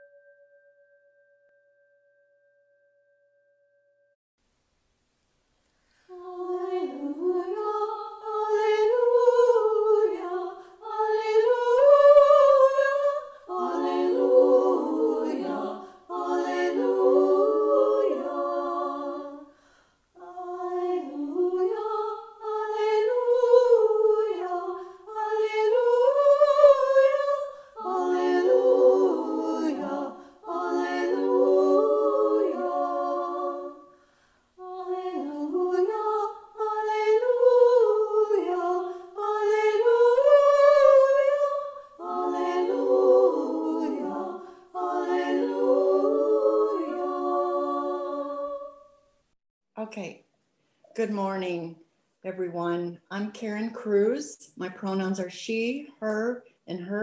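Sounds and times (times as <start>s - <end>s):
singers breathing: 5.8s - 6.3s, 10.5s - 10.8s, 15.8s - 16.1s, 19.4s - 20.1s, 30.1s - 30.4s, 33.8s - 34.6s, 44.4s - 44.8s
women singing a cappella: 6.1s - 49.2s.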